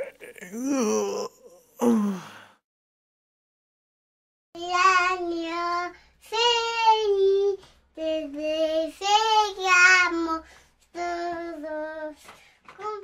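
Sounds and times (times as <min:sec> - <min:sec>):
child singing: 0:04.6 - 0:13.0.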